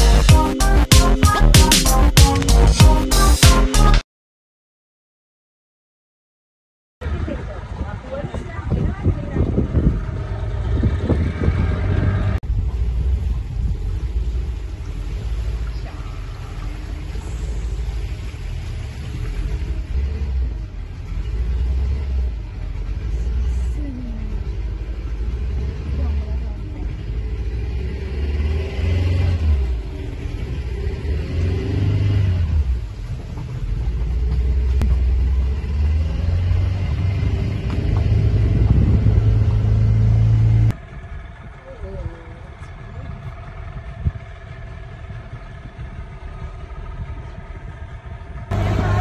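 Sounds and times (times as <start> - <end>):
boat motor rumbling: 7.0 - 49.0.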